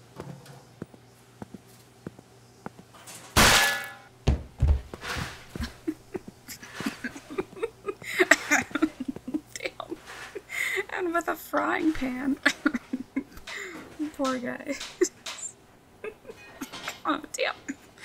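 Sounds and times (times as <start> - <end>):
frying pan metallic clang: 3.4 - 4.1
heavy thuds: 3.4 - 5.8
dishes and cutlery clattering: 16.5 - 17.1.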